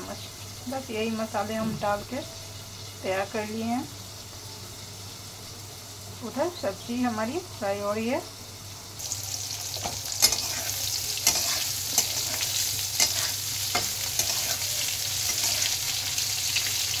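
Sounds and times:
vegetables sizzling in hot oil: 0:00.0 - 0:17.0
metal spatula scraping a pan: 0:09.7 - 0:16.9.

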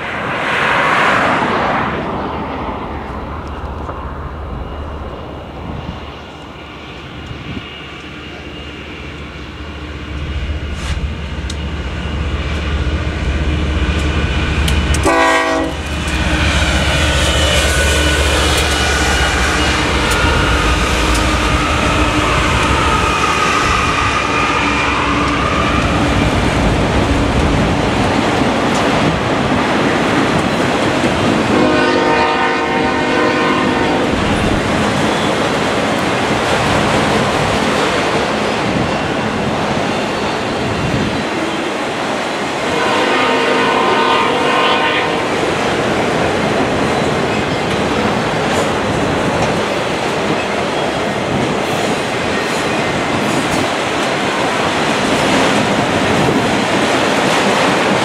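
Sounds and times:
train wheels on rails: 0:00.0 - 0:58.0
diesel locomotive rumble: 0:02.5 - 0:39.9
train horn blast: 0:14.9 - 0:16.1, 0:31.5 - 0:34.2, 0:42.6 - 0:45.5.

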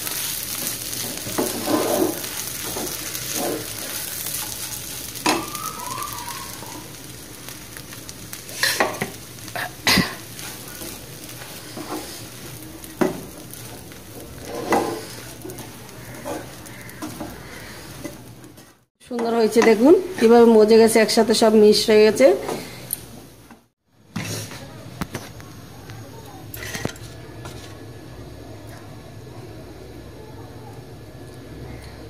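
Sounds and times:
spatula scraping a pan: 0:00.0 - 0:05.5, 0:08.5 - 0:20.3
hot oil sizzling: 0:00.0 - 0:32.0.

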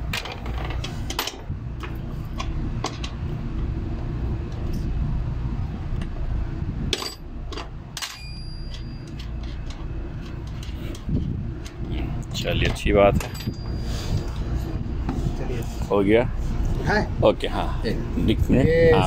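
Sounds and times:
steady low hum: 0:00.0 - 0:19.0
light metallic clicks and clinks: 0:07.0 - 0:11.1.

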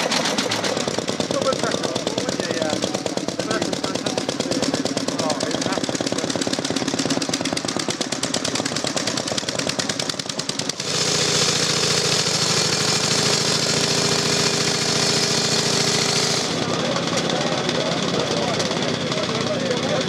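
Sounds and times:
single-cylinder engine rapid beat: 0:00.0 - 0:20.0
v-twin engine humming: 0:00.0 - 0:20.0.

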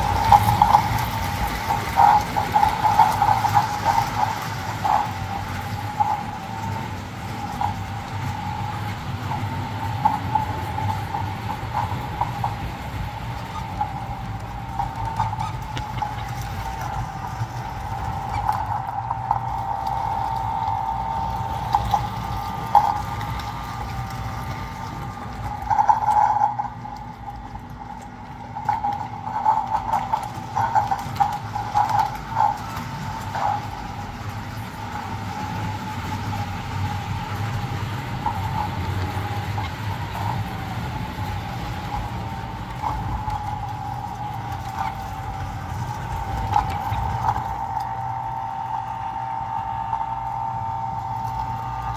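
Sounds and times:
model train motor whine: 0:00.0 - 0:51.9
wheels clicking on track: 0:00.0 - 0:51.9.

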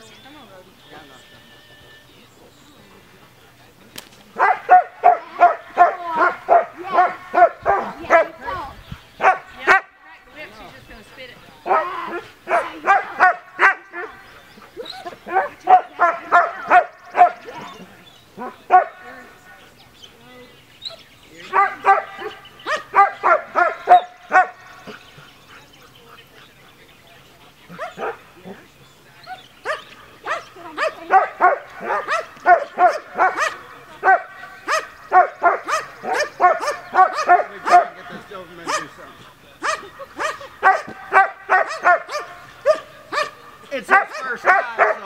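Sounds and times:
dog barking: 0:04.4 - 0:08.4, 0:09.2 - 0:09.9, 0:11.7 - 0:14.2, 0:14.8 - 0:17.7, 0:18.4 - 0:19.0, 0:21.5 - 0:25.0, 0:27.7 - 0:28.2, 0:29.3 - 0:38.0, 0:38.6 - 0:39.0, 0:39.6 - 0:45.0.

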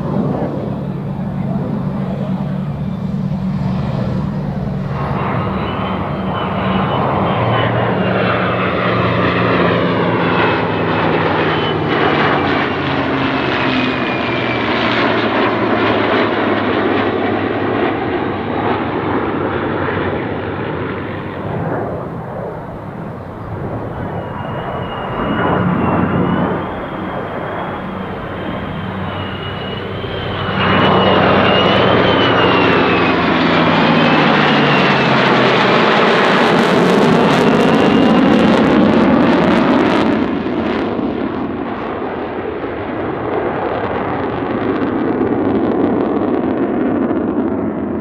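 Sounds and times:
jet roar: 0:00.0 - 0:48.0
propeller engine drone: 0:00.0 - 0:48.0
thin high whine: 0:21.0 - 0:36.4.

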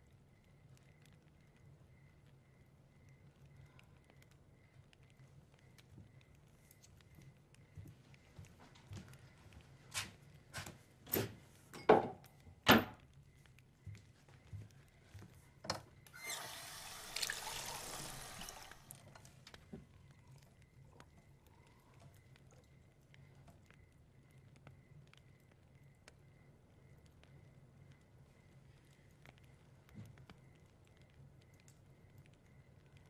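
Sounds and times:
water running: 0:16.2 - 0:19.4.

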